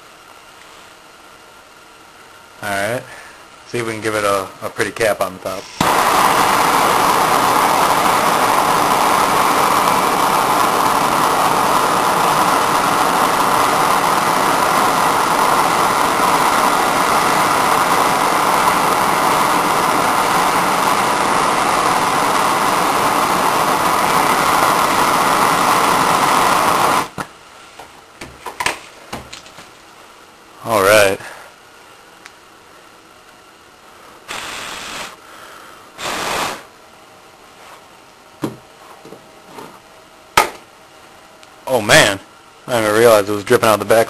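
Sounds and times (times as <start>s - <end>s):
gas torch hissing: 2.6s - 27.3s, 34.2s - 36.8s.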